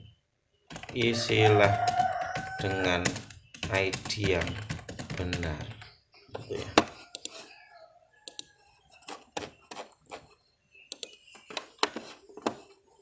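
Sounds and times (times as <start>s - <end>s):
computer mouse clicking: 7.1s - 7.4s, 8.2s - 10.3s, 10.9s - 12.7s.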